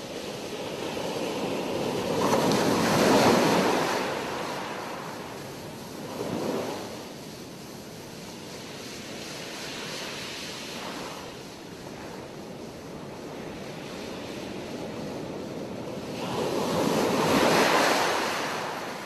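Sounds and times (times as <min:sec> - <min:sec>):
wind on microphone: 0:00.0 - 0:19.0
surf breaking on beach: 0:00.3 - 0:07.6, 0:13.0 - 0:19.0.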